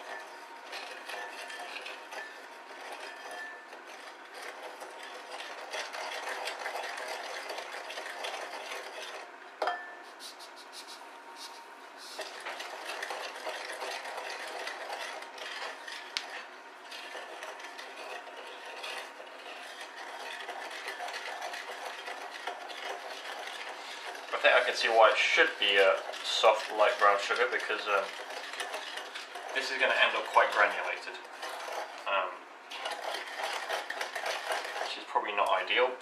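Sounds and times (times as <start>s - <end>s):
spoon scraping glass bowl: 0.0s - 10.0s, 12.1s - 35.6s.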